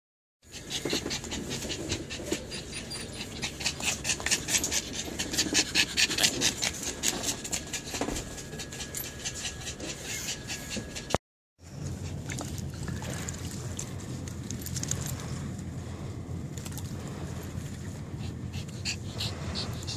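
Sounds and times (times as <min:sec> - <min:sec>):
small dog panting: 0:00.5 - 0:11.2, 0:17.8 - 0:19.9.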